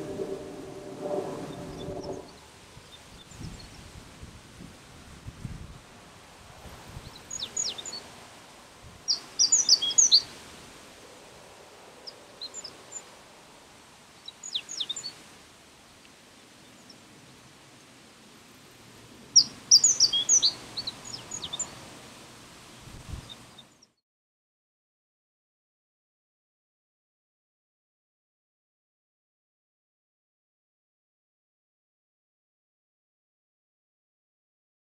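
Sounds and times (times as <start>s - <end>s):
bunting singing: 0.0s - 2.4s.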